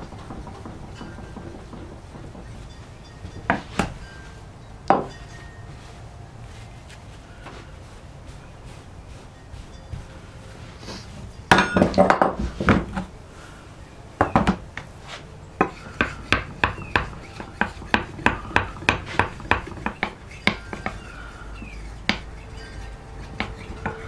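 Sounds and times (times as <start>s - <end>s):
clattering knocks with metallic ring: 0.0s - 5.8s, 11.2s - 13.0s, 15.6s - 24.0s.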